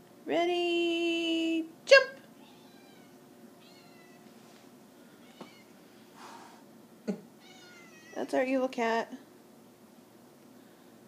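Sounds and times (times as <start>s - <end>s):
cat meowing faintly: 2.4s - 4.3s, 5.2s - 5.7s, 7.4s - 8.2s.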